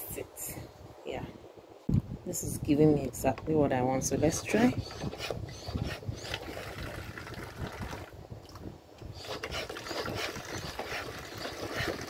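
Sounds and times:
plastic pump clicking and creaking: 0:04.5 - 0:12.0.

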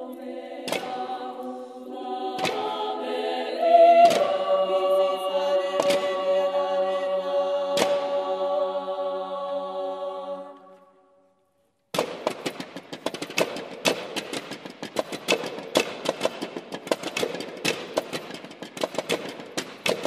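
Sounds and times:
women's choir holding a chord: 0:00.0 - 0:11.2
clatter of sharp taps and clicks: 0:12.0 - 0:20.0.

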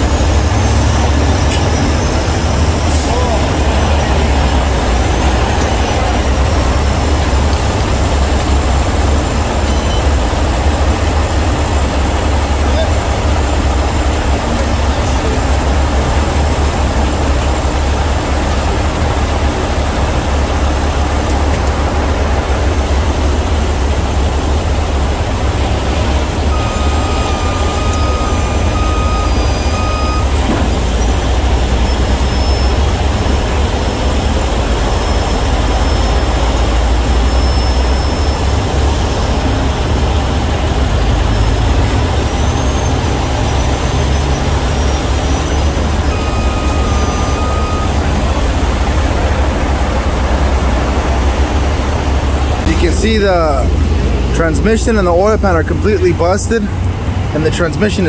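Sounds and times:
diesel truck engine rumbling: 0:00.0 - 0:58.0
high-pitched tone: 0:25.1 - 0:39.6, 0:41.3 - 0:53.8.

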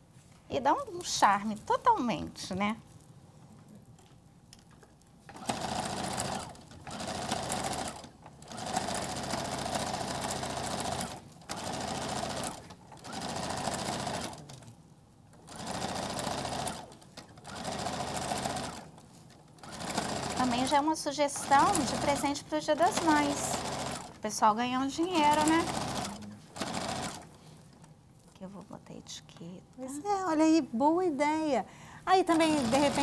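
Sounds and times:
sewing machine stitching: 0:05.3 - 0:14.7, 0:15.4 - 0:24.3, 0:25.0 - 0:27.4, 0:32.2 - 0:33.0.

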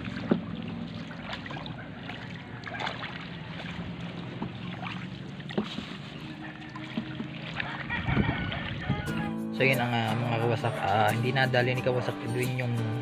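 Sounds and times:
paddle knocking on canoe: 0:00.0 - 0:09.1
paddle splashing in water: 0:00.0 - 0:09.1.

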